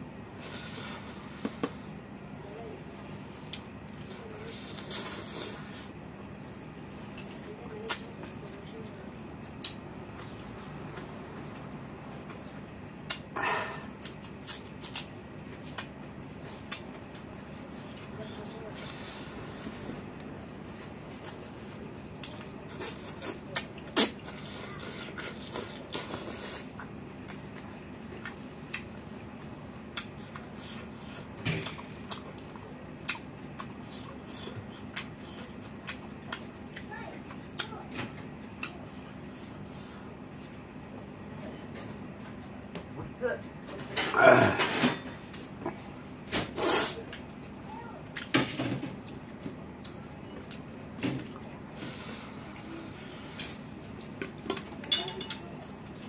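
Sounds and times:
man chewing food: 0:00.0 - 0:42.9, 0:45.1 - 0:56.0
sharp mouth clicks: 0:13.1 - 0:13.3.

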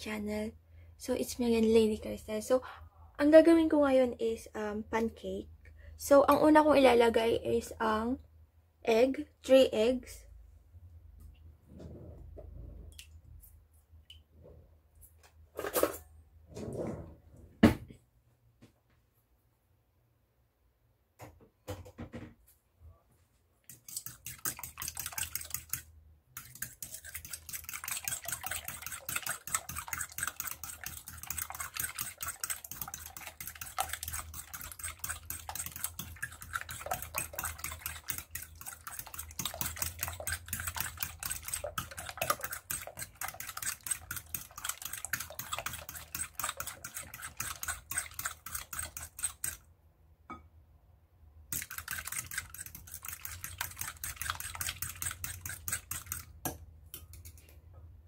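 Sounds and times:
whisk clicking against glass bowl: 0:23.7 - 0:49.6, 0:51.5 - 0:57.1.

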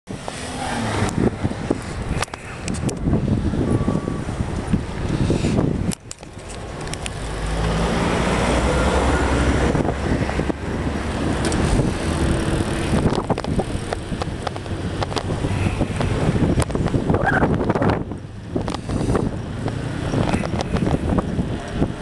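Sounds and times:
road traffic: 0:00.1 - 0:22.0
wind rushing over microphone: 0:00.1 - 0:22.0
clicks and knocks from bike: 0:01.8 - 0:03.1, 0:05.9 - 0:07.2, 0:13.0 - 0:15.4, 0:19.6 - 0:21.8.

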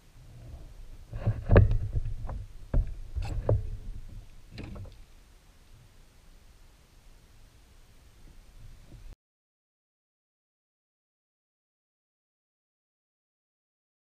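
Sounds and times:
lead weights clacking on plastic hull: 0:01.1 - 0:05.0.

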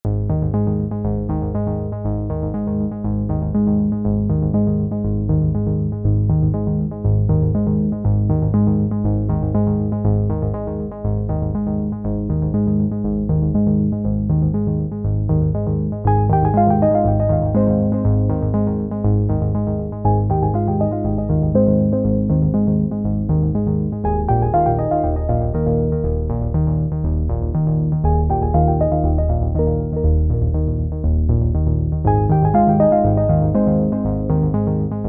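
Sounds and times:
low bass line: 0:00.0 - 0:35.0
synthesizer and keyboard tune: 0:00.1 - 0:35.0.

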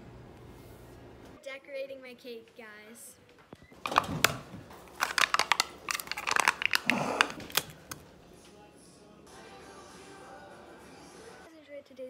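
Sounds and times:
plastic tub lid crinkling and clicking: 0:03.8 - 0:08.1.

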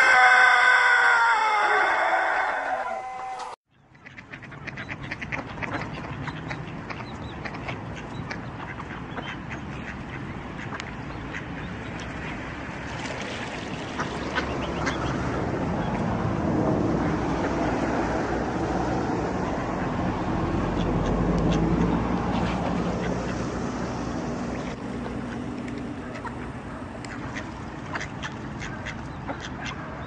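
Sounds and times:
ducks quacking: 0:03.8 - 0:12.5, 0:13.7 - 0:16.0, 0:19.4 - 0:23.5, 0:24.5 - 0:30.0.

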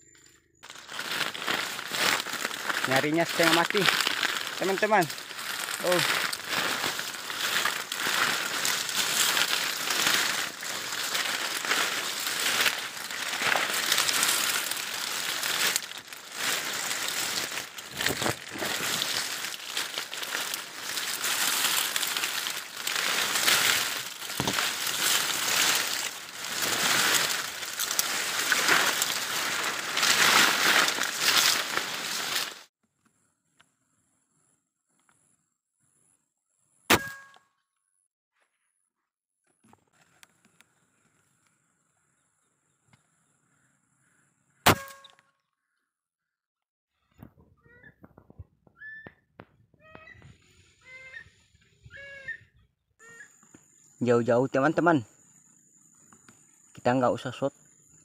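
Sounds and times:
grass rustling underfoot: 0:00.6 - 0:32.7
stalks snapping: 0:00.7 - 0:32.6.

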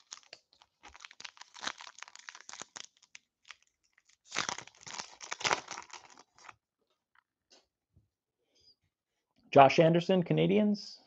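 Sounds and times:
foil wrapper tearing: 0:00.0 - 0:06.5
foil wrapper crinkling: 0:00.0 - 0:06.6.

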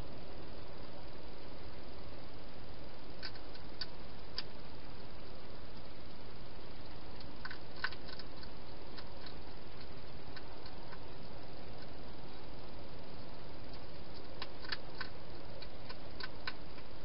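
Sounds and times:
microphone hiss: 0:00.0 - 0:17.0
hedgehog crunching food: 0:03.1 - 0:04.8, 0:06.8 - 0:17.0.

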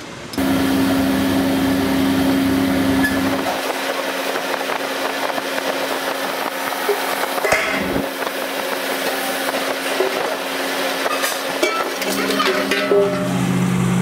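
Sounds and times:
low machine rumble: 0:00.0 - 0:03.7
metal press machine hum: 0:00.0 - 0:14.0.

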